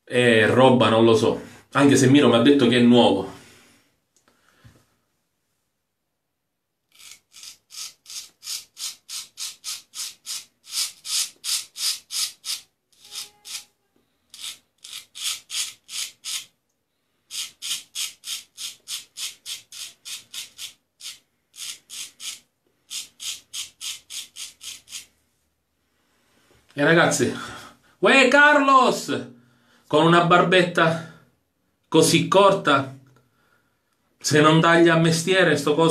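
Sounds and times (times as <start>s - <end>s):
straight razor scraping stubble: 6.9s - 13.7s, 14.3s - 16.5s, 17.3s - 25.1s.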